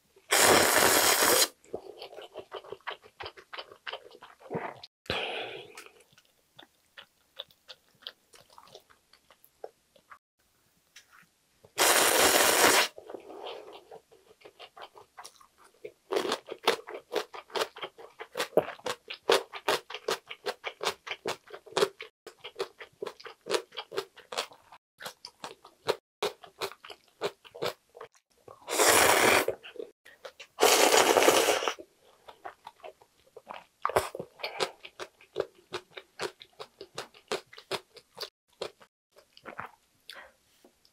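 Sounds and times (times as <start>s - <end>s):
slurping noodles and soup: 0.3s - 2.6s, 11.8s - 14.0s, 28.6s - 31.9s
crunchy chewing: 5.7s - 10.1s.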